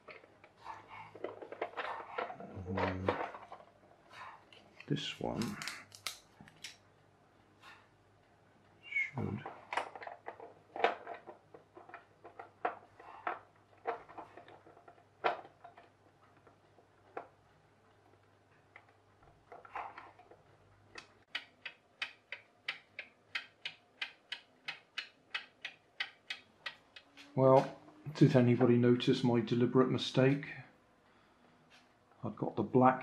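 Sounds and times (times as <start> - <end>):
plastic parts clicking and knocking: 0.0 - 3.8, 4.5 - 6.8, 9.2 - 27.2
clock ticking steadily: 21.0 - 27.2.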